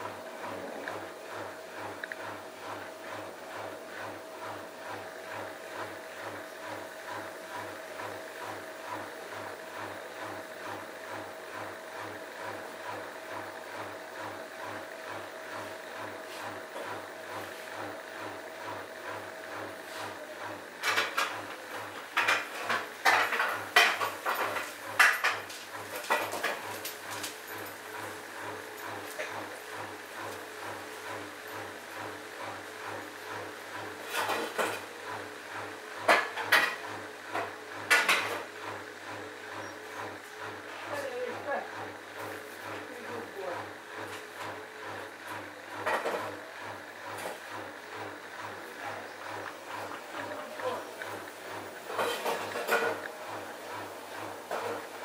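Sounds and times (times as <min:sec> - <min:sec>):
washing machine hum: 0:00.0 - 0:55.0
washing machine drum turning: 0:45.7 - 0:55.0.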